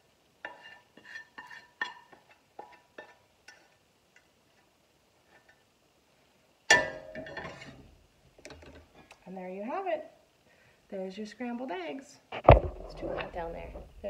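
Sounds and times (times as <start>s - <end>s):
pan clanking on stove grate: 0.4s - 4.3s, 6.7s - 7.9s
spatula scraping frying pan: 0.4s - 5.6s, 6.7s - 7.9s.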